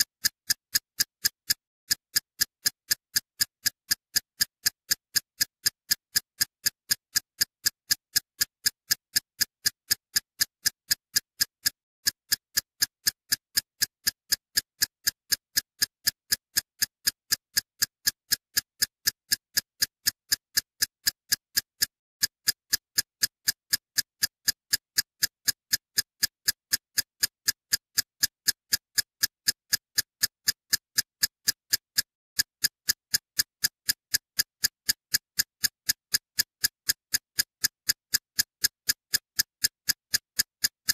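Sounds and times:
electronic ticking beat: 0.0s - 40.9s.

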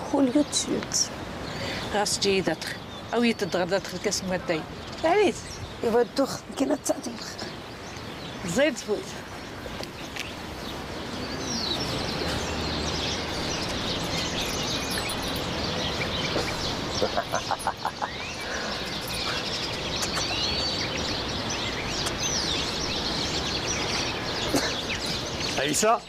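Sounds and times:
small birds chirping: 0.0s - 26.0s
steady background hiss: 0.0s - 26.0s.

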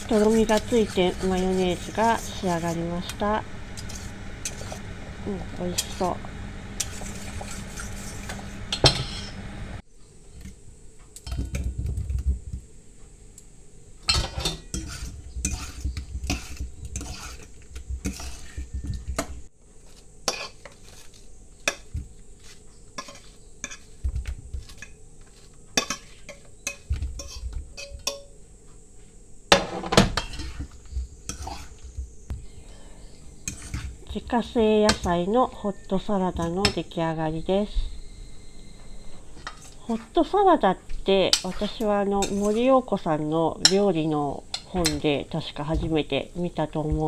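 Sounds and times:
spoon scraping bowl: 0.0s - 9.5s, 14.1s - 28.3s, 30.1s - 32.2s, 33.1s - 36.9s, 38.7s - 40.2s, 41.2s - 42.9s
spoon clinking against metal bowl: 25.8s - 28.3s.

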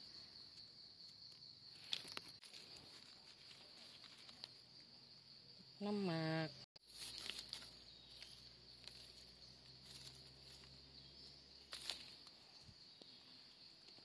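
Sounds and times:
knife scraping in leaves and soil: 0.0s - 4.8s, 6.8s - 13.2s
high insect drone: 0.0s - 14.0s
dry leaves crackling: 1.7s - 4.6s, 6.8s - 12.6s.

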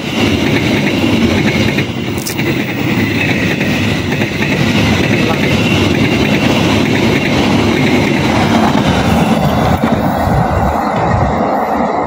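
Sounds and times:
train wheels rumbling on rails: 0.0s - 12.0s.

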